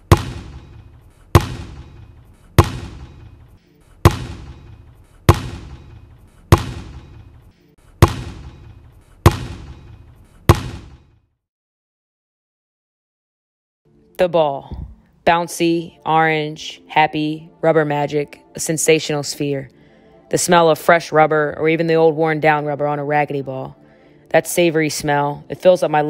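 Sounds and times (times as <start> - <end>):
basketball bouncing on hard court: 0.0 - 3.4, 4.0 - 7.3, 8.0 - 11.1.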